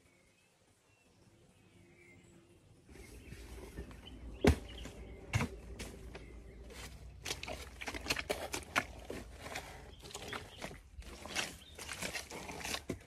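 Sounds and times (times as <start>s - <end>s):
wet steps in mud: 4.4s - 13.0s.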